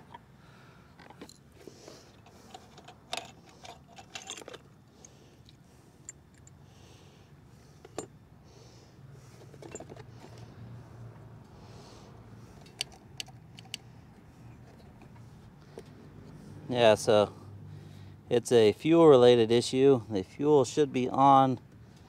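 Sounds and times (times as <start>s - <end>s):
parts clicking and rattling: 0.9s - 6.6s, 7.7s - 8.2s, 9.2s - 10.6s, 12.4s - 16.0s.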